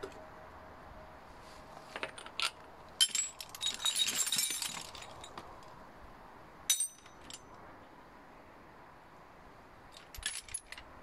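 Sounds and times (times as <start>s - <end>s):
metal tools clattering in crate: 2.4s - 5.3s.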